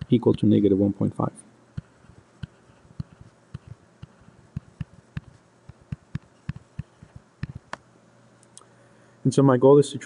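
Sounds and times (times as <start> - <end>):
stylus tapping on tablet: 1.7 - 7.8.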